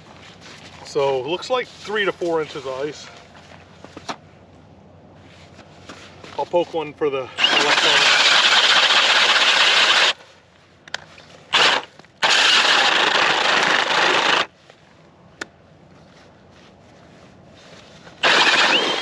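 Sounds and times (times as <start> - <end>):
cordless drill spinning auger: 7.4 - 10.2, 11.5 - 14.5, 18.2 - 19.0.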